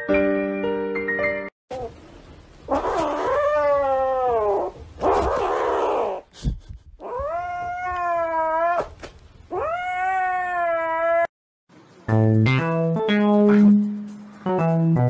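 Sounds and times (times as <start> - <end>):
kitten yowling: 2.7 - 6.2, 7.0 - 11.3.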